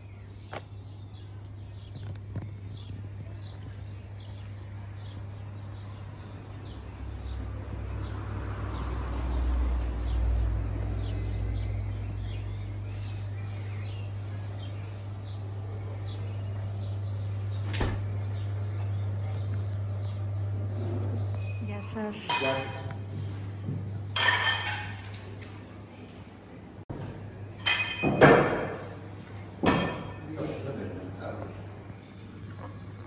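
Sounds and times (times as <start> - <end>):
small birds chirping: 0.0 - 23.4.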